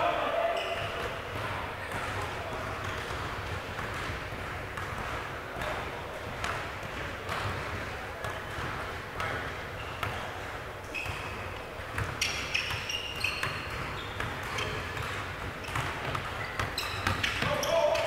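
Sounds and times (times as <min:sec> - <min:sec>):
ball bouncing on court: 0:00.5 - 0:18.0
short high squeaks: 0:12.2 - 0:14.8.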